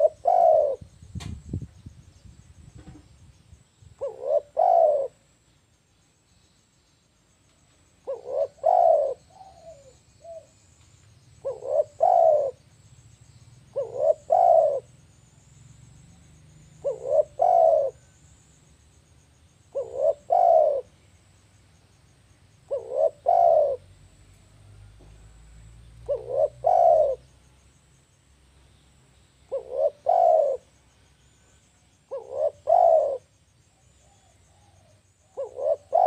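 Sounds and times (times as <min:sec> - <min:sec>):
dove cooing: 0:00.0 - 0:01.0, 0:04.0 - 0:05.2, 0:08.0 - 0:10.6, 0:11.4 - 0:12.6, 0:13.7 - 0:14.9, 0:16.6 - 0:18.2, 0:19.7 - 0:21.0, 0:22.6 - 0:24.0, 0:24.6 - 0:27.4, 0:29.5 - 0:30.7, 0:32.0 - 0:36.0.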